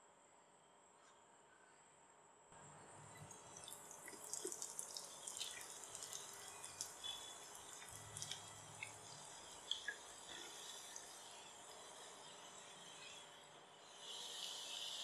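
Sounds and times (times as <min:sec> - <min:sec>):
food deep-frying in hot oil: 0:03.4 - 0:12.3.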